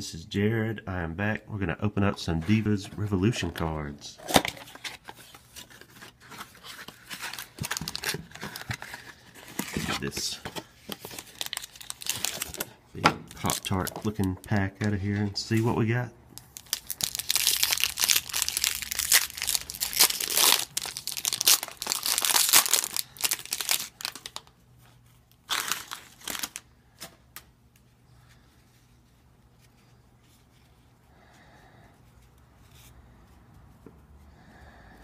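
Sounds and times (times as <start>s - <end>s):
handling of cards: 4.2s - 12.7s, 13.3s - 15.8s, 16.4s - 30.9s
foil wrapper tearing and crinkling: 7.0s - 10.1s, 11.0s - 12.7s, 13.3s - 14.3s, 16.4s - 24.5s, 25.4s - 26.7s.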